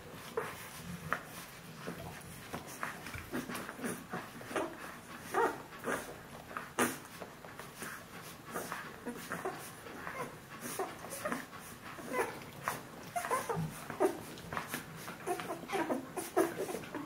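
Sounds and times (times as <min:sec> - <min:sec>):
puppies squeaking and whimpering: 0:02.8 - 0:06.1, 0:08.5 - 0:17.0.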